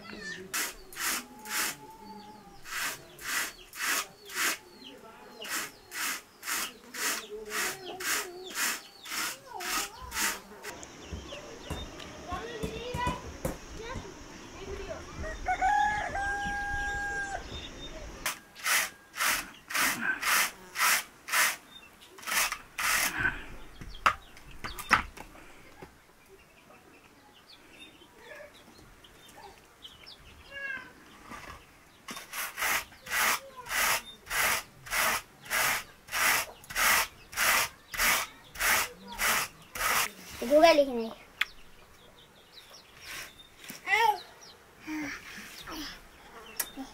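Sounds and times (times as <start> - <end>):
wool carders scratching: 0.2 - 2.0, 2.6 - 4.7, 5.4 - 10.8, 18.3 - 21.6, 22.2 - 23.4, 31.2 - 41.1, 42.9 - 43.9.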